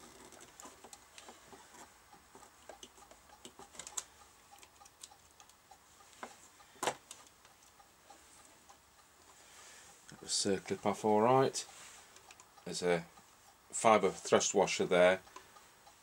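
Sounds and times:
small metal clicks and scrapes: 0.0 - 5.6.

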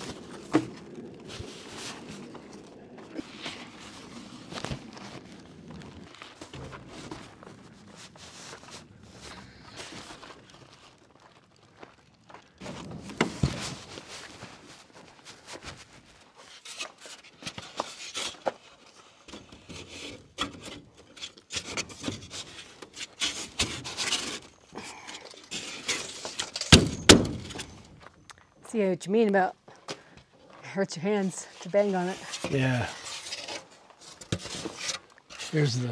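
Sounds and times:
foam blocks scraping together: 15.4 - 24.6, 31.6 - 35.9.

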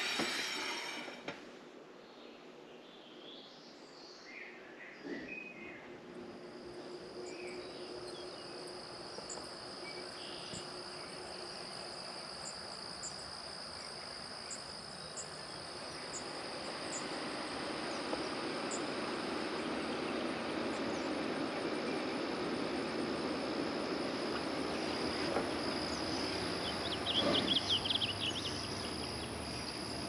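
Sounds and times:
insects trilling: 6.1 - 30.0.

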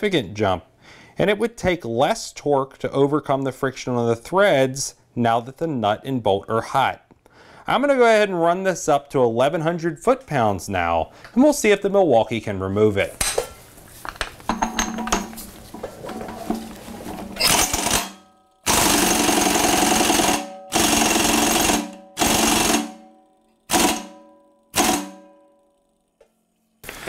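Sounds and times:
air impact wrench bursts: 18.7 - 23.0, 23.7 - 24.2, 24.8 - 25.3.

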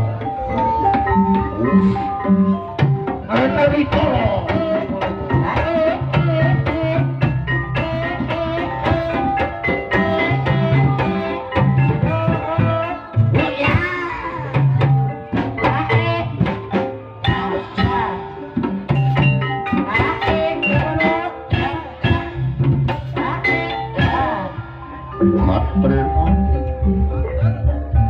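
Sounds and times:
wavering melodic line: 0.0 - 13.9, 23.1 - 28.0
gamelan ensemble playing: 0.0 - 28.0.

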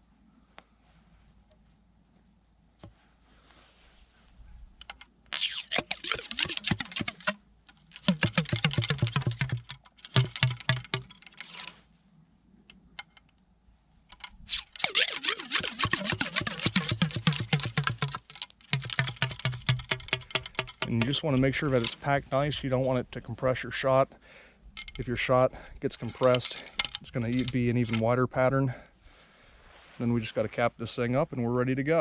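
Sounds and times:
ramrod rattling in gun barrel: 4.8 - 11.8, 14.1 - 22.1, 24.8 - 28.2.

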